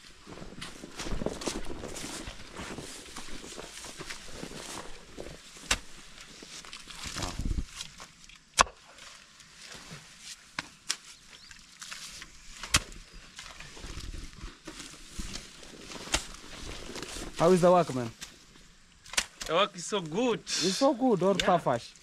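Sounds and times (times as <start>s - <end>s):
hoes chopping and scraping mud: 0.6s - 9.0s, 10.3s - 17.5s, 21.2s - 21.6s.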